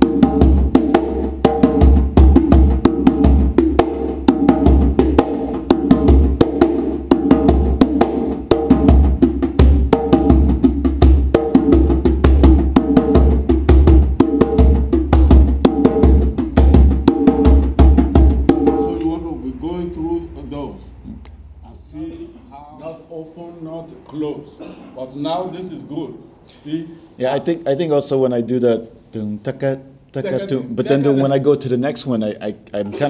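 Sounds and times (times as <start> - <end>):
djembe hand drumming: 0.0 - 19.2.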